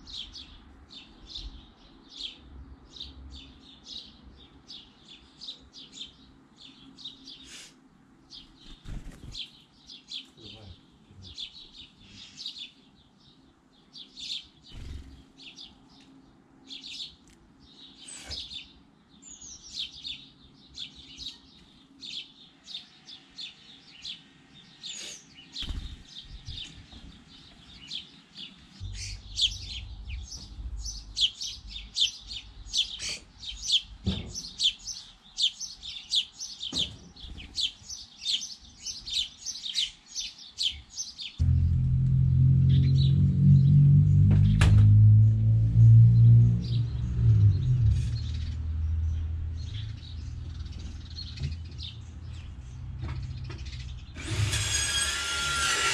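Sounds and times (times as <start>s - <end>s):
sparrows chirping: 0.0s - 41.7s, 45.8s - 54.6s
low rumble: 28.8s - 32.6s, 41.4s - 54.2s.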